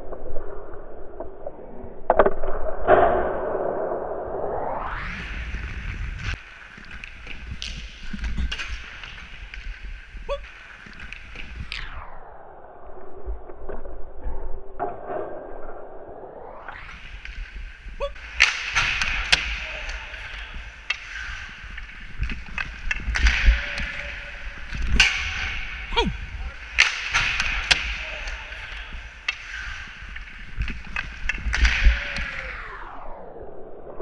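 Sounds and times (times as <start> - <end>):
low wind rumble: 0.0 - 34.0
ice skate blades scraping: 5.5 - 11.7, 17.0 - 32.0
hockey stick striking puck: 18.2 - 32.5.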